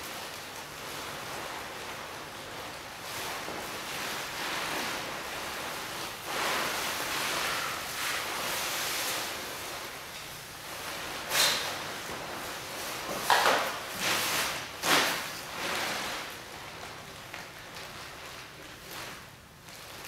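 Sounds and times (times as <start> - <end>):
plastic sheeting rustling: 0.0 - 20.0.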